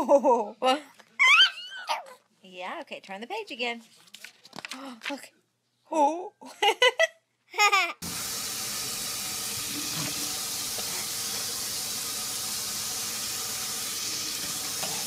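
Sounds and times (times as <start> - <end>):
faucet water pouring into sink: 8.0 - 15.0.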